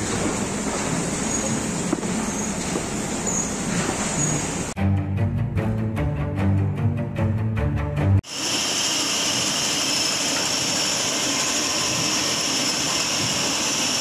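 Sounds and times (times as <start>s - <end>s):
music: 4.8s - 8.2s
industrial machinery running: 8.2s - 14.0s.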